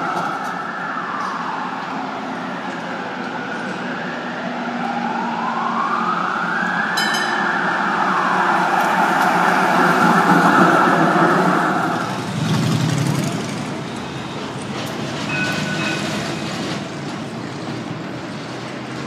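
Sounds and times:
tram passing: 0.0 - 19.0.

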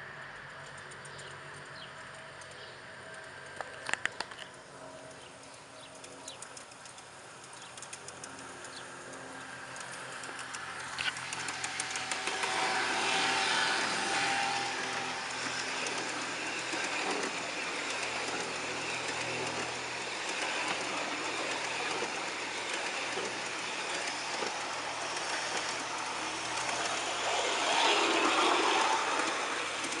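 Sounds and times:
clicks of wheels on track: 0.1 - 30.0
model train wheels rattling: 0.4 - 30.0.

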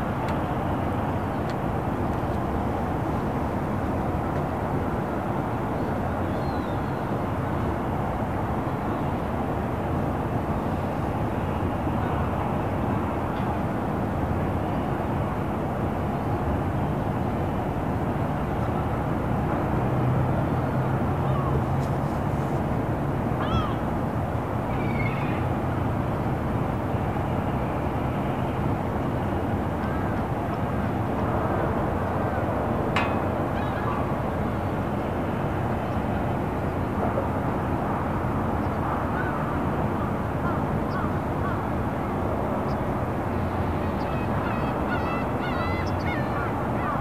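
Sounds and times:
distant traffic rumble: 0.0 - 47.0
seabird call: 5.7 - 7.2, 20.5 - 21.8, 23.3 - 23.9, 24.6 - 25.8, 33.0 - 34.9, 38.6 - 47.0.

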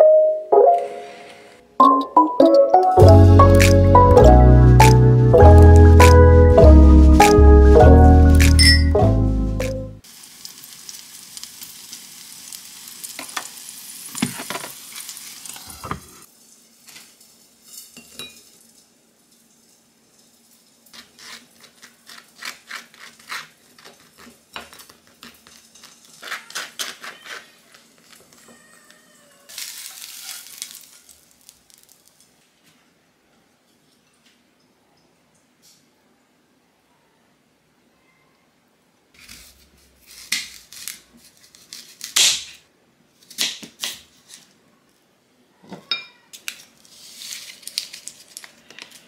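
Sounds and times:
food sizzling in frying pan: 10.0 - 20.9, 29.5 - 32.1.

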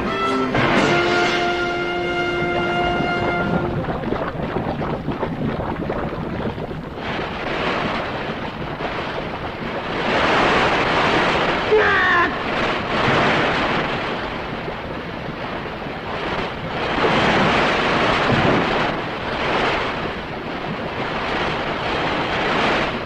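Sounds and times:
orchestral brass chord: 0.0 - 3.8
rushing wind sound effect: 0.0 - 23.0.

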